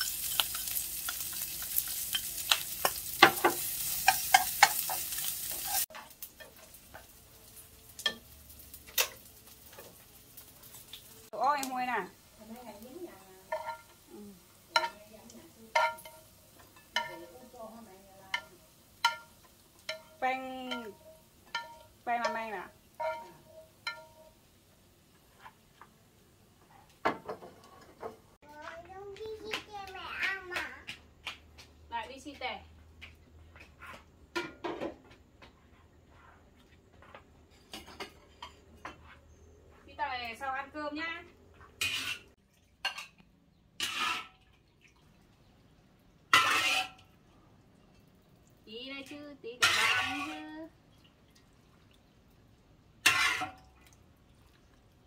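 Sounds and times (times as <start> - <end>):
metal utensil clinking on pot: 0.0 - 6.6, 13.5 - 14.0, 14.7 - 15.1, 15.7 - 17.5, 18.3 - 24.4, 49.6 - 50.5, 53.1 - 53.8.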